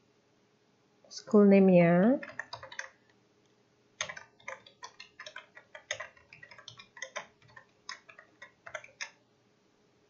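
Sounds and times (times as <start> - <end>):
keyboard key clicks: 2.2 - 3.0, 4.0 - 9.2.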